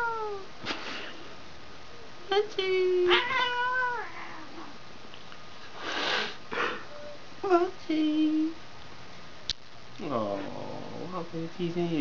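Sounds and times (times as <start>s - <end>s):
cat yowling: 0.0s - 0.5s, 3.0s - 4.8s
cat hissing: 3.1s - 4.8s, 5.7s - 6.9s.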